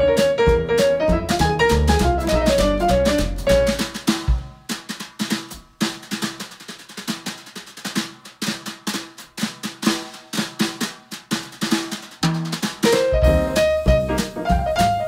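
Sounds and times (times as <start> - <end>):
bass drum hits: 0.0 - 4.6, 12.9 - 15.0
snare drum strokes and rolls: 0.0 - 15.0.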